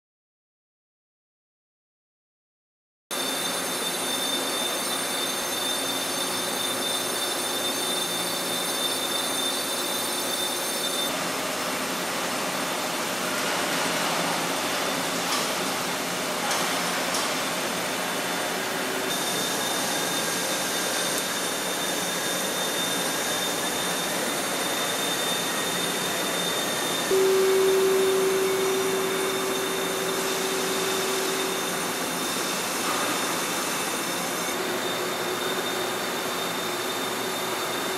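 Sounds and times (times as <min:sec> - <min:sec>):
lathe cutting noise: 0:03.2 - 0:37.9
loud steady hum: 0:10.7 - 0:36.2
high whining tones: 0:19.1 - 0:34.8.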